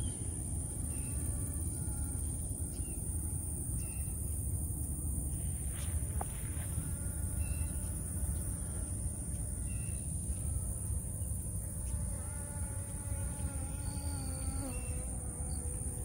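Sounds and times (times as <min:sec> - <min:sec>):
high-pitched insect drone: 0:11.9 - 0:16.0.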